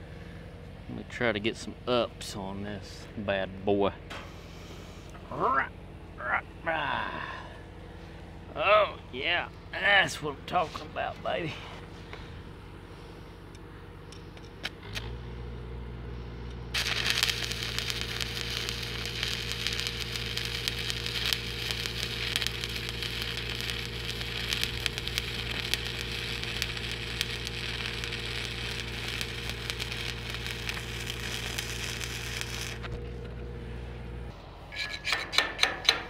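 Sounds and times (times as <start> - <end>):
steady low hum: 0.0 - 36.0
welding arc crackling: 16.7 - 33.0.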